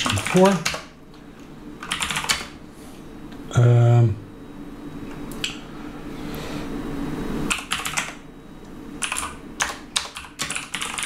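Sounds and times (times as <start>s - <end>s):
typing on keyboard: 0.0s - 0.9s, 1.8s - 2.5s, 7.5s - 8.2s, 9.0s - 11.0s.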